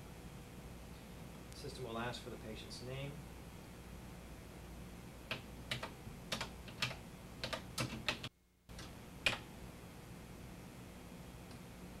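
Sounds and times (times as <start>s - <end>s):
faint steady hum: 0.0s - 12.0s
keyboard keystrokes: 5.3s - 9.4s.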